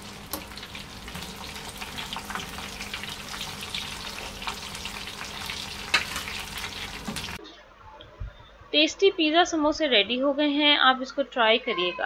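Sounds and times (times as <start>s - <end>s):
oil sizzling while deep-frying: 0.0s - 7.4s.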